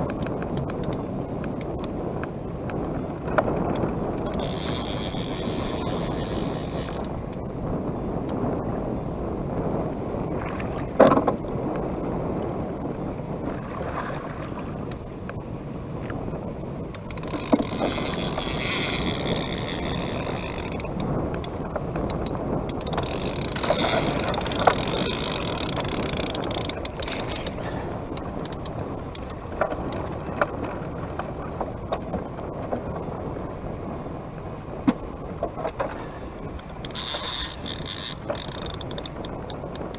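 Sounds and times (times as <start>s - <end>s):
fishing tackle clicks and knocks: 0.0s - 7.4s, 16.9s - 31.3s, 36.8s - 39.9s
wind on microphone: 0.0s - 39.9s
river current rushing: 22.8s - 28.1s.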